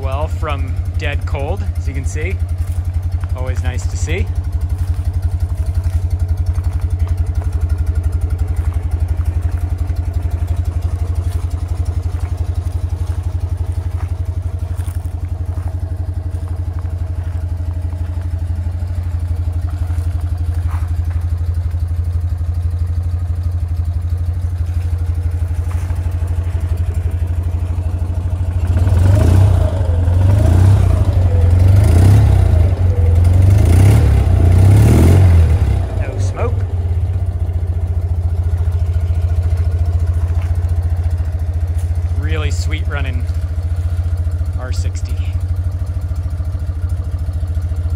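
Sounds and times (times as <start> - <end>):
engine revving: 0.0 - 21.4, 24.6 - 47.9
motorcycle engine idling: 0.0 - 47.9.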